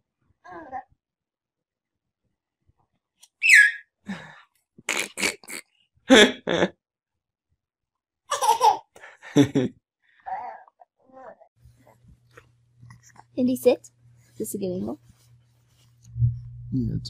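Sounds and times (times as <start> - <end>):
baby laughing: 3.4 - 3.9, 8.3 - 9.0
baby squealing: 3.4 - 3.9.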